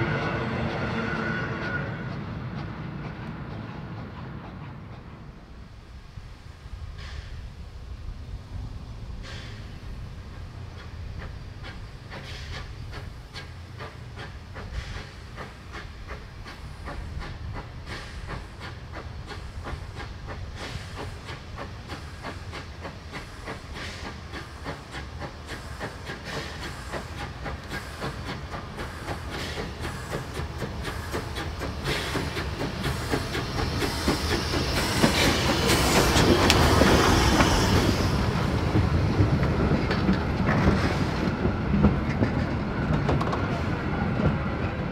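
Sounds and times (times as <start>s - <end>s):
rush of steam: 0.0s - 44.9s
steam locomotive exhaust beats: 0.0s - 44.9s
train wheels clacking over rail joints: 9.2s - 44.9s.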